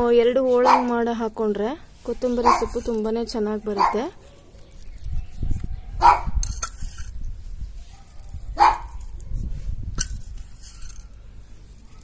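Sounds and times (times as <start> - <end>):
dog barking: 0.6 - 0.9, 2.4 - 2.8, 3.8 - 4.4, 6.0 - 6.4, 7.9 - 9.0.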